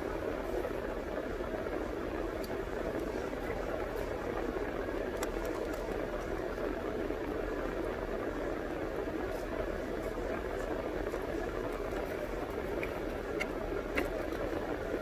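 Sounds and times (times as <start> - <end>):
faint ticks: 2.4 - 3.1, 5.0 - 6.5, 11.6 - 14.8.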